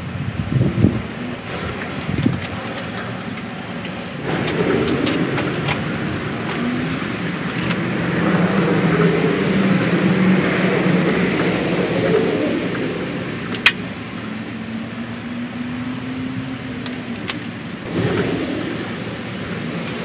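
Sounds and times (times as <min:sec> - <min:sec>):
wind on microphone: 0:00.0 - 0:20.0
plastic tarp flapping: 0:01.4 - 0:08.6.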